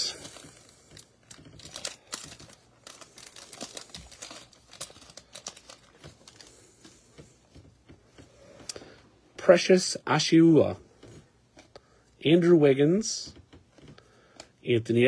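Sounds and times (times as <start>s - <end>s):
foil wrapper tearing and crinkling: 0.0s - 6.5s.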